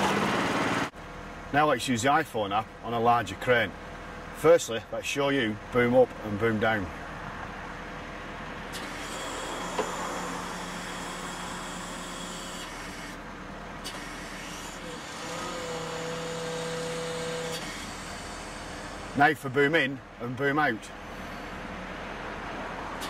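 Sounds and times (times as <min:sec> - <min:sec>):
crane engine running: 0:00.0 - 0:23.0
hydraulic whine: 0:08.5 - 0:19.7.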